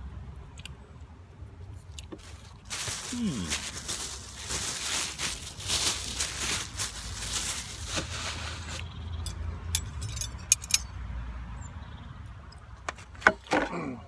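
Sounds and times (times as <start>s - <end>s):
paper wrapping crinkling: 2.1s - 8.9s.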